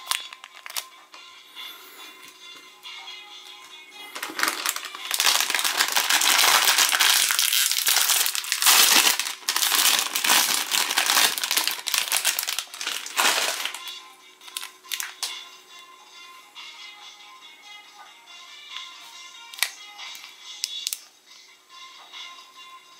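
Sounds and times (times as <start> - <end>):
plastic wrapper crinkling: 0.0 - 0.9, 4.1 - 15.3.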